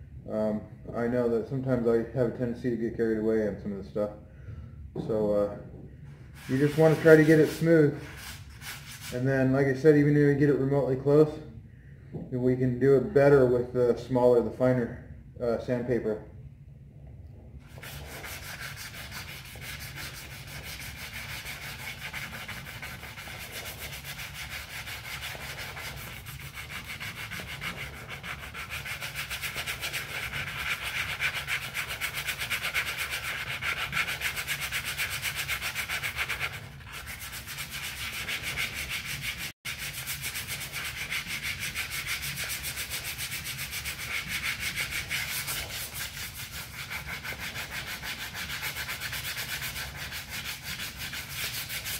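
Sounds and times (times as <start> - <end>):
sandpaper rasping on metal: 6.4 - 9.2, 17.7 - 51.9.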